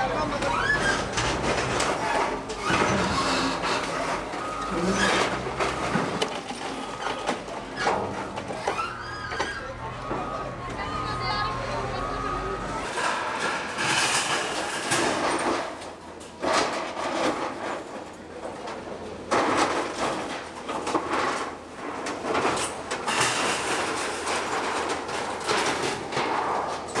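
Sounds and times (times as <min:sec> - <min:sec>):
metal sheeting scraping and crunching: 0:00.0 - 0:09.8
falling rubble: 0:00.0 - 0:27.0.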